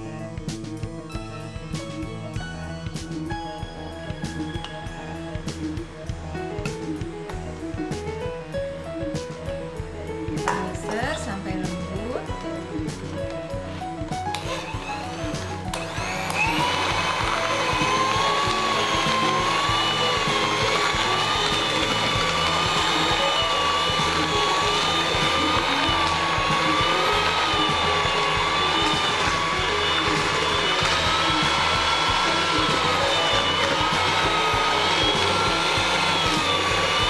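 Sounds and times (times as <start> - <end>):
faint background music: 0.0 - 37.0
electric hand mixer whining: 2.9 - 7.7, 14.3 - 37.0.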